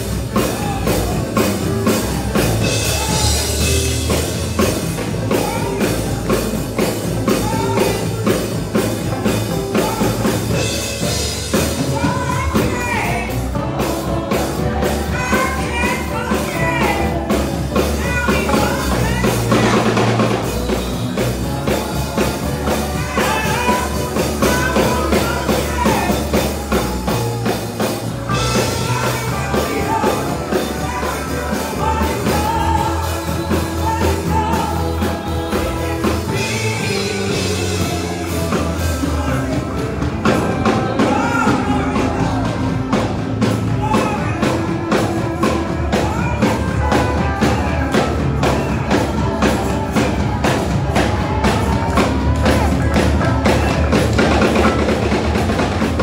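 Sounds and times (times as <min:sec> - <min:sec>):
choir singing: 0:00.0 - 0:43.2
instrumental backing: 0:00.0 - 0:56.0
steady drum beat: 0:00.0 - 0:56.0.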